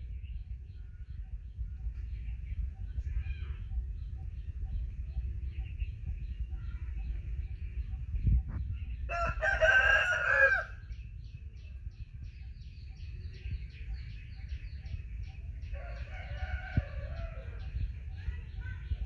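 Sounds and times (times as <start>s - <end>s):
rooster crowing: 9.1s - 10.8s.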